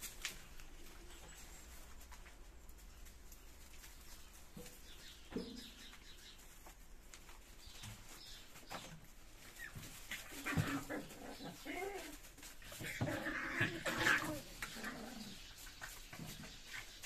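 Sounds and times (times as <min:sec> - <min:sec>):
puppies scuffling: 0:00.0 - 0:17.0
puppies yipping and whining: 0:09.6 - 0:16.0.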